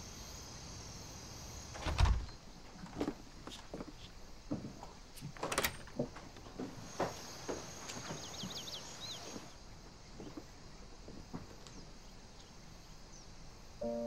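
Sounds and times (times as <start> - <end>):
door latch clicking: 1.8 - 2.3.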